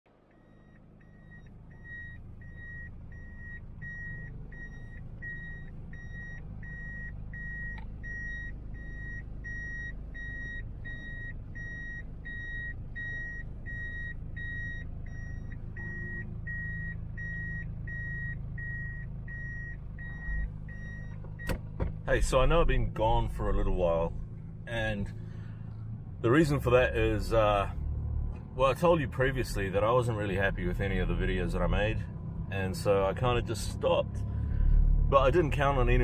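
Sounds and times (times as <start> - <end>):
diesel engine rumble: 0.1 - 36.0
reverse warning beeper: 0.3 - 21.6.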